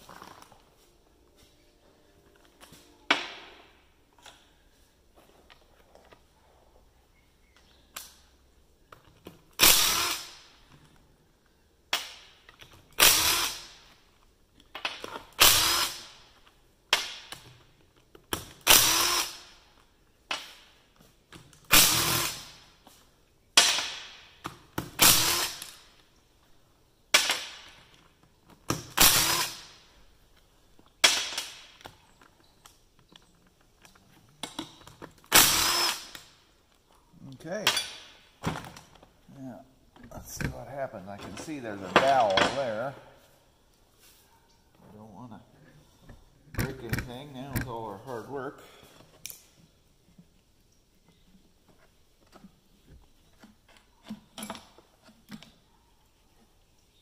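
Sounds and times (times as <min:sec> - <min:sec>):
power driver bursts: 0:09.6 - 0:10.4, 0:35.3 - 0:36.2.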